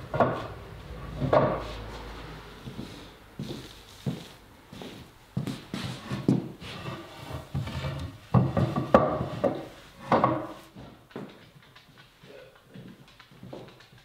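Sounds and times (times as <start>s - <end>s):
sharp wooden knocks: 0.1s - 0.6s, 1.2s - 1.6s, 8.3s - 14.0s
wood scraping against wood: 0.1s - 11.0s.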